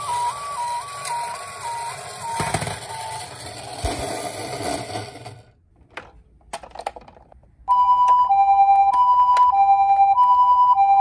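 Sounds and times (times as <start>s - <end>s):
two-tone ambulance siren: 0.0s - 3.5s, 7.7s - 11.0s
toy ambulance whirring rattle: 0.0s - 5.5s.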